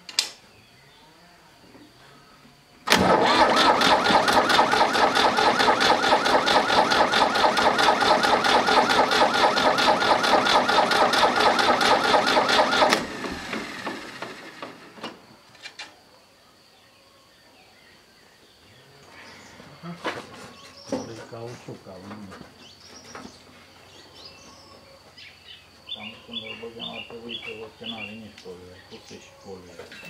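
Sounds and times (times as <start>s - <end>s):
diesel engine cranking on starter: 2.8s - 15.3s
engine spinning down: 2.9s - 15.2s.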